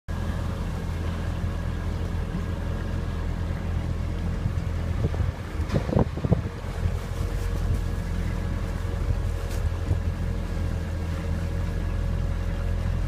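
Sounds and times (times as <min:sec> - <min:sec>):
boat motor droning: 0:00.1 - 0:13.0
water noise: 0:00.1 - 0:13.0
wind buffeting microphone: 0:04.2 - 0:10.9.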